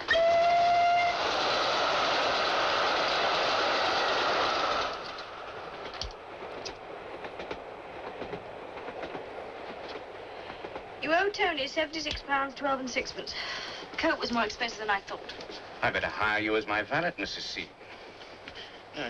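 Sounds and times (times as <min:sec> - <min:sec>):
steam whistle: 0:00.0 - 0:05.0
train running heard inside carriage: 0:00.0 - 0:19.0
rush of steam and running gear: 0:00.7 - 0:05.6.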